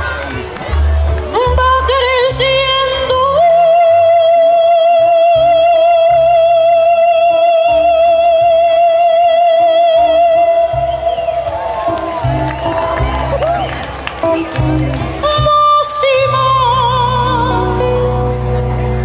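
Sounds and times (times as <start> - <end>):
instrumental accompaniment: 0.0 - 19.0
woman singing into microphone: 1.3 - 11.5, 15.2 - 19.0.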